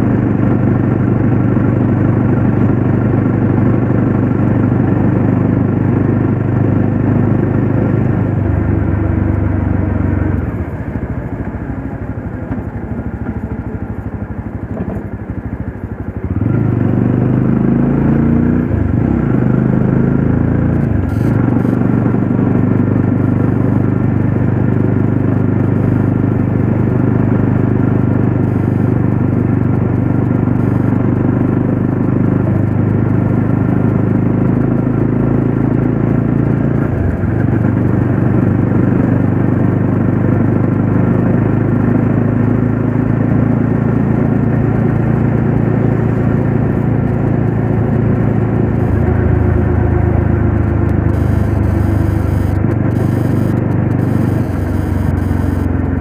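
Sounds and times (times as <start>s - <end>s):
motorcycle engine cruising: 0.0s - 56.0s.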